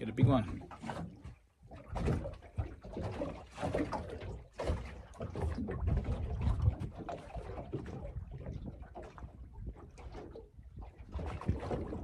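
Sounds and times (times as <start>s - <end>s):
waves slapping against boat hull: 0.0s - 12.0s
wind on microphone: 5.4s - 12.0s.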